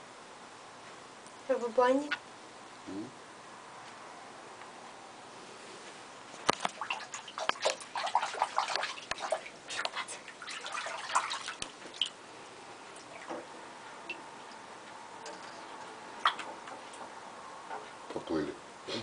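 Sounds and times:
bathwater splashing and sloshing: 6.4s - 12.2s, 12.8s - 14.6s
water drips: 6.4s - 12.2s, 12.9s - 17.2s.

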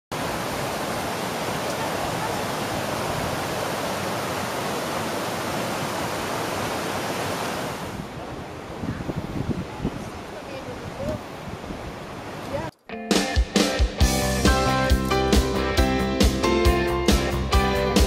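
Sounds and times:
gusty outdoor sound: 0.1s - 12.8s.

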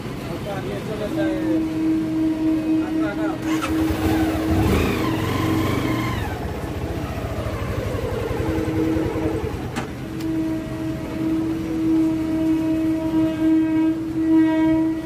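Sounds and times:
motorcycle engine at low speed: 3.4s - 13.8s.

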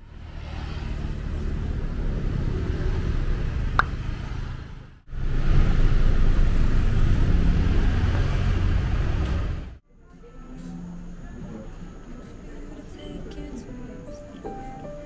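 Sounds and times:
cars passing: 0.0s - 9.8s
low traffic rumble: 0.0s - 15.0s.

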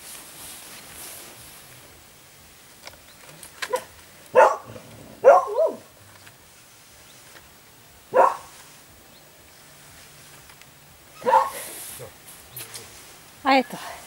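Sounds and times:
dog barking: 3.7s - 5.9s, 8.1s - 8.5s, 11.2s - 11.7s.

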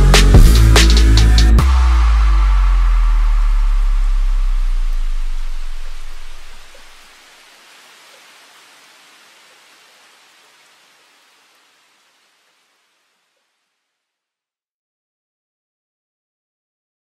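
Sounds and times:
background music: 0.0s - 6.6s
steady hiss: 0.0s - 13.8s.

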